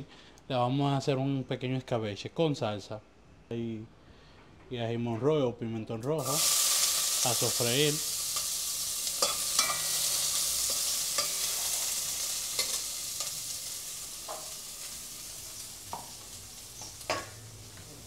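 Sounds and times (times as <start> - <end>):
vegetables sizzling in oil: 6.2 - 18.0.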